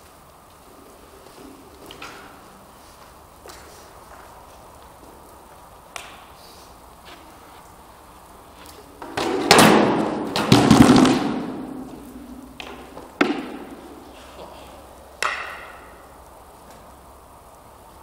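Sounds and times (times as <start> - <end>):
wooden weapons hitting wooden shields: 9.0 - 14.0, 15.2 - 16.0.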